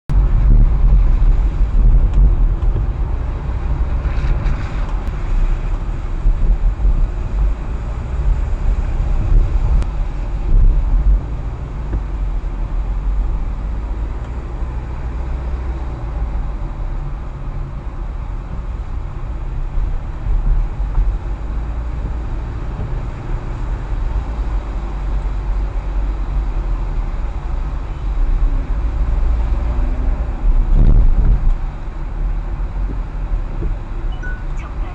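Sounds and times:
car driving on wet road: 0.1s - 34.9s.

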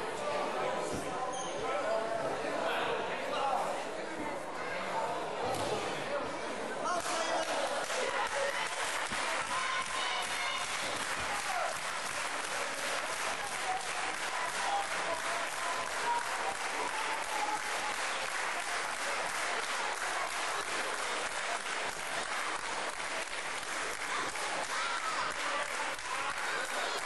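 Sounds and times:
crowd clapping: 6.9s - 27.0s.

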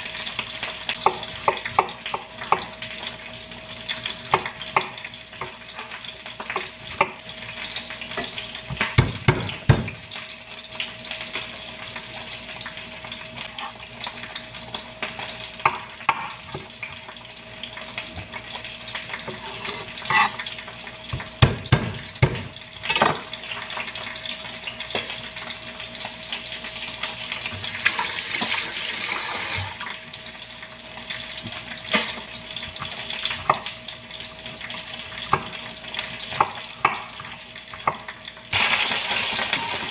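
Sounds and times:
knife chopping on wooden board: 8.7s - 10.0s.

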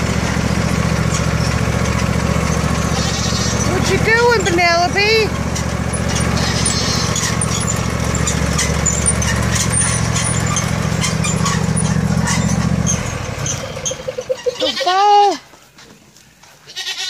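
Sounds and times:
riding lawn mower engine: 0.0s - 15.6s
goat bleating: 2.8s - 4.6s, 6.0s - 7.6s, 14.4s - 15.4s, 16.6s - 17.0s.

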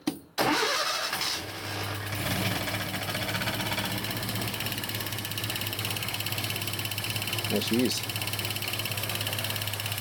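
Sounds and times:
car engine starting and idling: 0.4s - 10.0s
fuel injector ticking: 2.6s - 10.0s.

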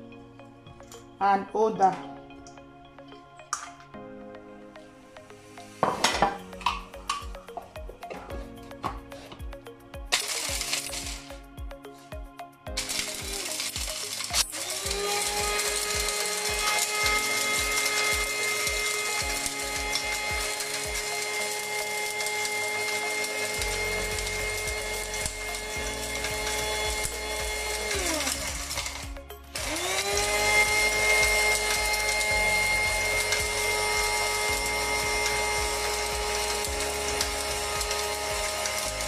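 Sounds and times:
electric chopper motor whirring: 10.1s - 11.5s, 12.8s - 39.0s.

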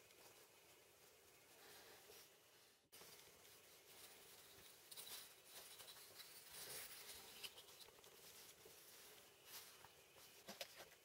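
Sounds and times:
light rustling and scraping: 0.0s - 11.0s.

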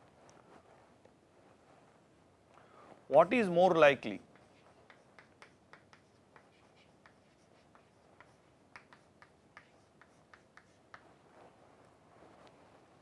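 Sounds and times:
chalk tapping on blackboard: 4.2s - 11.2s.

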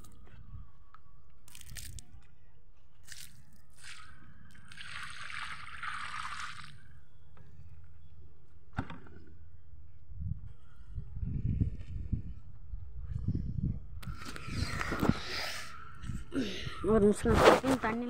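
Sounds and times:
water poured onto soil: 3.0s - 6.8s.

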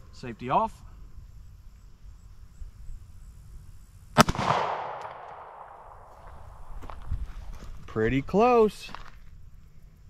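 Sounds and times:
pistol shot with echo: 4.2s - 6.1s.

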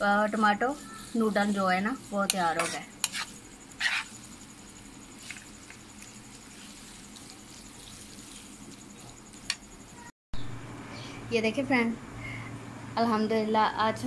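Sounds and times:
spatula scraping a wok: 0.1s - 9.6s.

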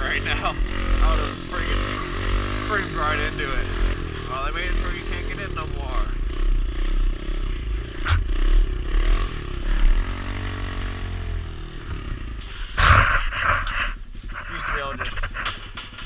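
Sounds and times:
small motorcycle engine running: 0.0s - 16.0s.

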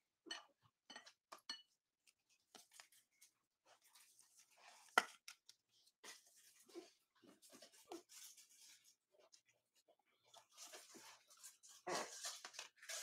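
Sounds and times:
plastic scraping and rustling: 10.3s - 13.0s.

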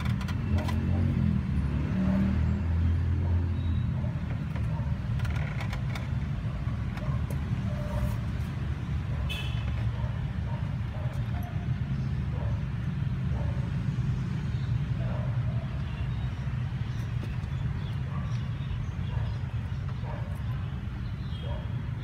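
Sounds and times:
traffic rumble: 0.0s - 22.0s.

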